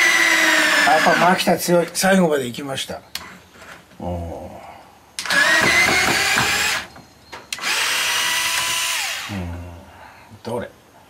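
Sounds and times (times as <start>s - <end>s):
cordless drill drilling into wood: 0.0s - 1.4s, 5.2s - 6.9s, 7.6s - 9.3s.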